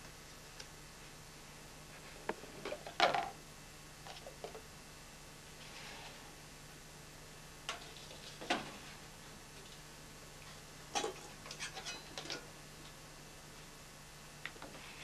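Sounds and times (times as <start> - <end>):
dishes and metal spoon clinking: 11.0 - 12.5.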